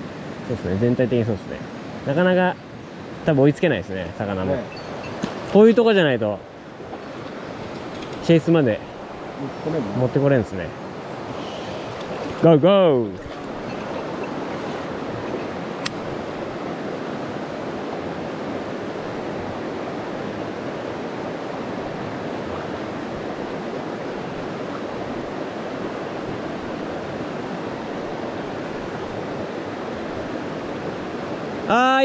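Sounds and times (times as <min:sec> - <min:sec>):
mountain stream rushing: 0:00.0 - 0:32.0.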